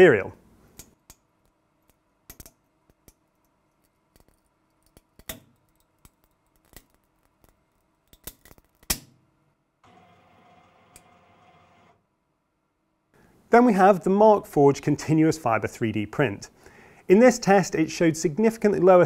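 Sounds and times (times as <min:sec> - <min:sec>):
steady hum: 0:09.8 - 0:12.1.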